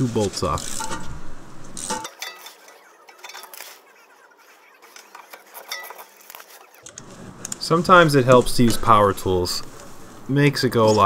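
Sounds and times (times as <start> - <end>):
ratchet clicking on bolts: 0.6 - 1.1.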